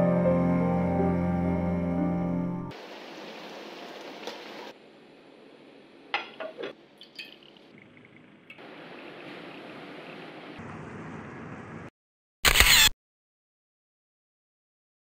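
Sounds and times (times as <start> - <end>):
liquid trickling: 7.0 - 10.4.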